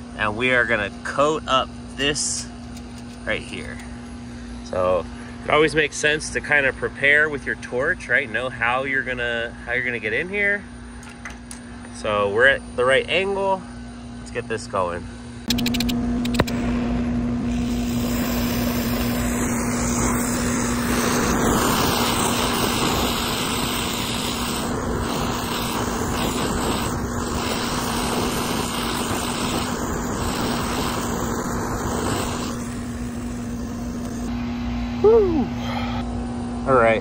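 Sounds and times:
low hum: 15.2 - 36.7
sharp clicks: 15.5 - 16.6
brazing torch hissing: 15.5 - 34.4.

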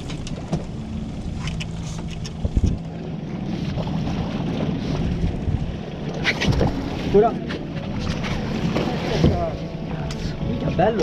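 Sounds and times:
sea washing around boat: 0.0 - 11.0
wind buffeting microphone: 2.3 - 9.6.

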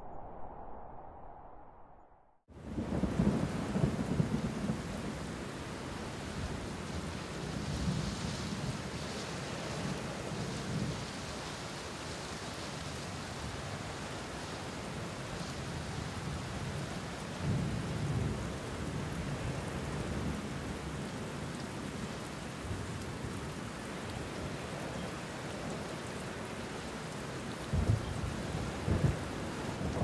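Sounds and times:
low rumble: 0.0 - 2.4
wind: 0.0 - 30.0
rain: 2.5 - 30.0.

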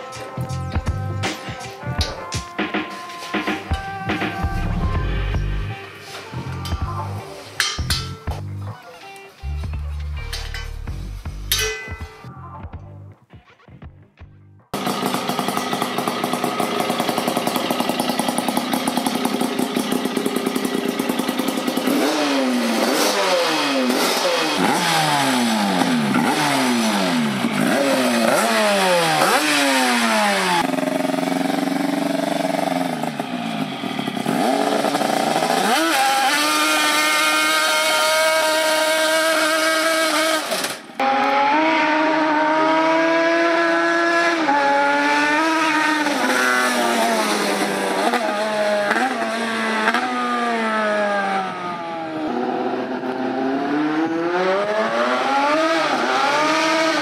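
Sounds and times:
riding mower engine revving: 14.8 - 57.0.

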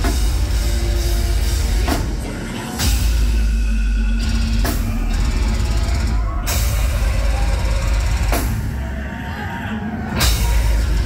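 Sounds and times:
fast heavy kick drums: 0.0 - 3.4
heavy metal band playing live: 0.0 - 11.0.

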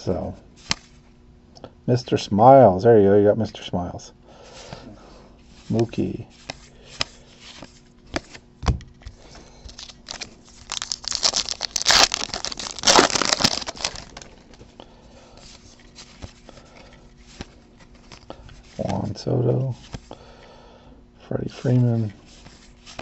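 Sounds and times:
foil wrapper tearing and crinkling: 9.7 - 14.6.

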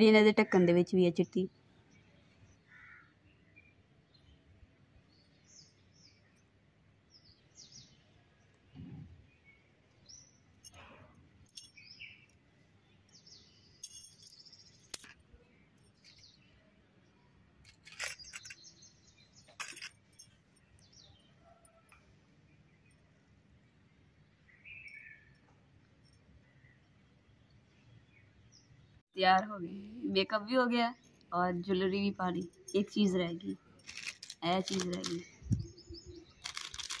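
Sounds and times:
small birds chirping: 0.4 - 37.0
sharp clicks and clinks: 17.6 - 18.8, 19.4 - 20.8, 32.3 - 35.4, 36.4 - 37.0.

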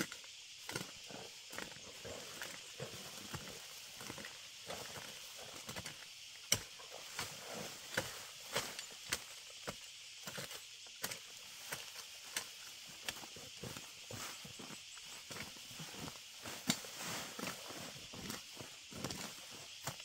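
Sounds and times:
hoe chopping and scraping soil: 0.0 - 20.0
steady high hiss: 0.0 - 20.0.

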